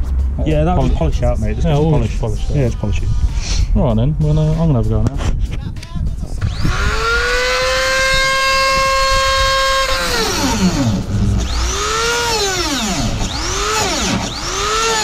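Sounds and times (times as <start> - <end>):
grinder cutting plastic: 6.4 - 15.0
rotary grinder whining: 6.4 - 15.0.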